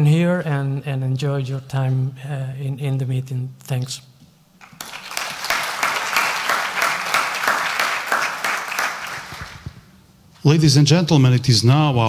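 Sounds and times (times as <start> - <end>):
audience applauding: 4.6 - 9.8.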